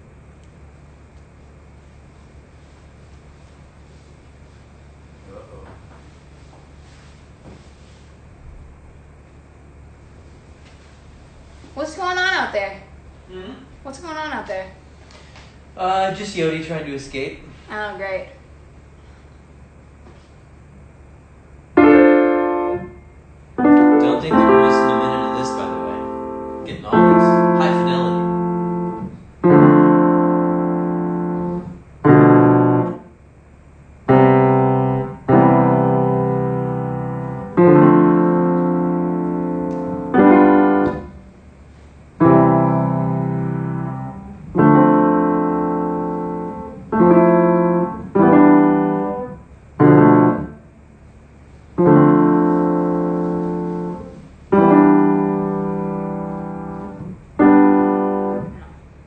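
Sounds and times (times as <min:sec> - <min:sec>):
piano playing slow chords: 0:21.7 - 0:33.2, 0:34.0 - 0:50.8, 0:51.7 - 0:59.0.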